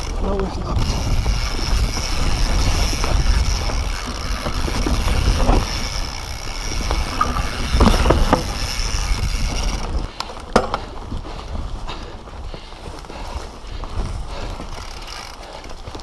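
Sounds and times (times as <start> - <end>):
bike knocks and clatters: 0.0 - 11.0
wind rumble on microphone: 0.0 - 15.2
bike rattling: 0.0 - 16.0
bike tyres on dirt: 0.0 - 16.0.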